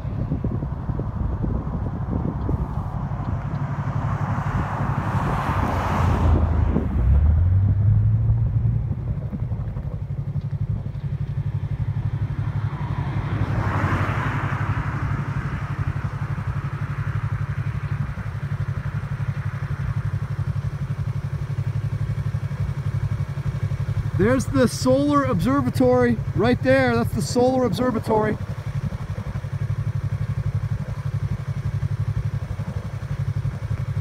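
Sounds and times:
motorcycle engine idling: 7.6 - 34.0.

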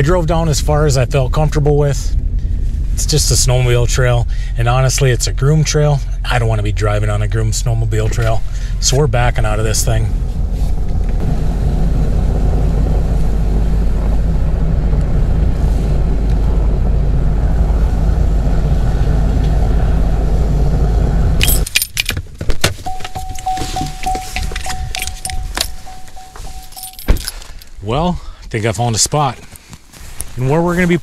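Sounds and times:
truck engine and tyres rumbling: 0.0 - 31.0
keys jangling: 21.4 - 22.2, 22.9 - 27.7
steady high beep: 22.9 - 27.1.

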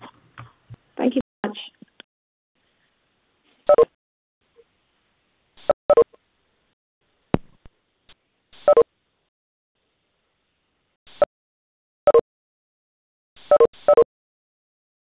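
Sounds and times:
short electronic beeps: 3.7 - 3.9, 8.6 - 8.8, 13.4 - 14.1.

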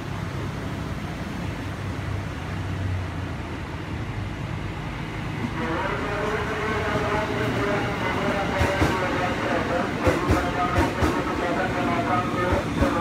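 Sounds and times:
electric train rumbling: 0.0 - 13.0
high train tones: 4.0 - 13.0.

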